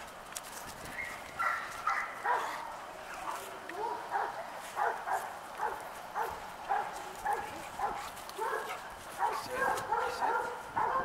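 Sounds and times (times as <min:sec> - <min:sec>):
dog barking: 0:01.4 - 0:02.7, 0:03.8 - 0:11.0.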